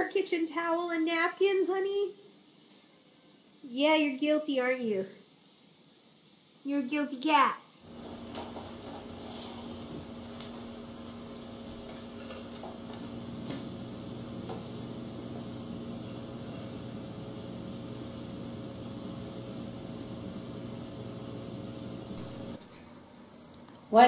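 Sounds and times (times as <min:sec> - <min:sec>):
steady low hum: 0:07.8 - 0:24.0.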